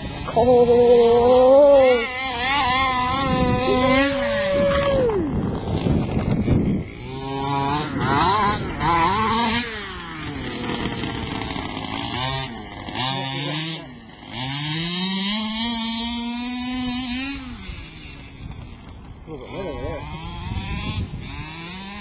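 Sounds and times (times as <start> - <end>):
small two-stroke engine revving: 0.0 - 22.0.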